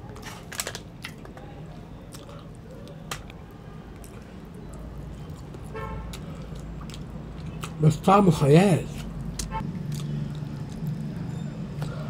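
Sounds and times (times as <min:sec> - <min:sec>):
soft chewing: 0:00.0 - 0:07.8, 0:08.9 - 0:12.0.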